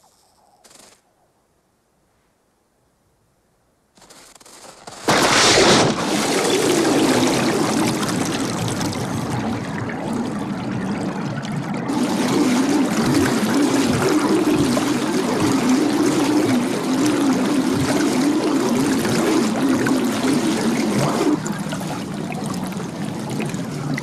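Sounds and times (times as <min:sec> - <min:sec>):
loud splash through ice: 0:04.9 - 0:09.6
underwater churning and bubbling: 0:05.1 - 0:24.0.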